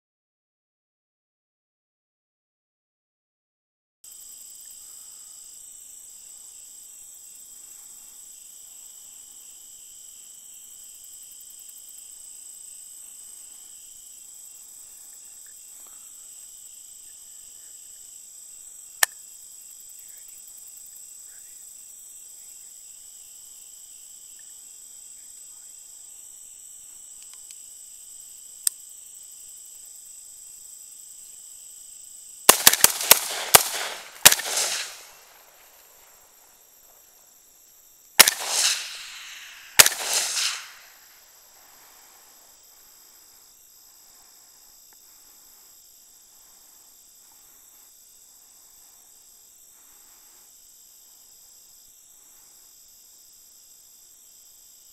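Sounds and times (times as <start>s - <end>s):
night insects chorus: 4.1s - 54.9s
sharp clicks: 32.5s - 35.2s, 38.2s - 40.8s
rifle shots: 32.5s - 35.4s, 38.2s - 40.9s.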